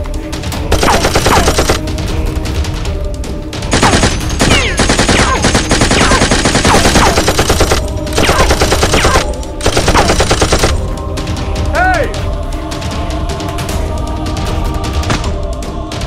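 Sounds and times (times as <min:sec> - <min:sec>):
automatic gunfire: 0:00.7 - 0:01.8, 0:03.7 - 0:10.8.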